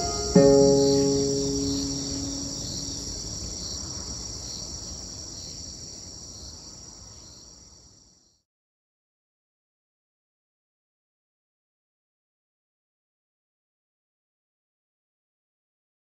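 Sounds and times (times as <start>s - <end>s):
plucked string note: 0.0s - 3.1s
crickets chirping: 0.0s - 8.4s.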